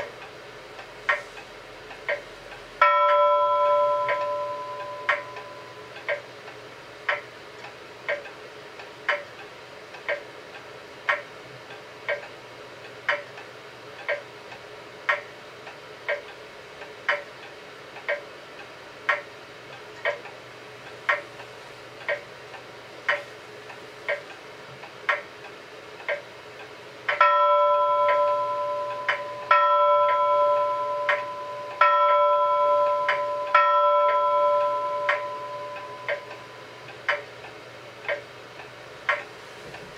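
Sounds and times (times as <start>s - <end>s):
clock ticking: 0.0s - 39.9s
bell-like clock chime: 2.8s - 6.2s, 27.2s - 36.8s.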